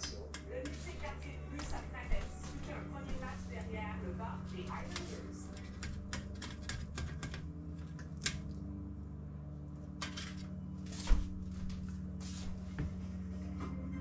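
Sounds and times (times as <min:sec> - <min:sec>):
cutlery scraping a roasting pan: 0:04.8 - 0:08.4, 0:10.0 - 0:10.5.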